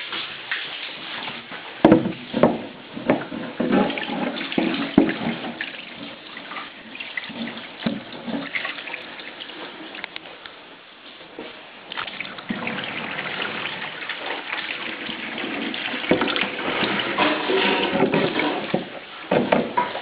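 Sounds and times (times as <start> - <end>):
running splashing water: 3.6 - 10.2, 11.9 - 19.3.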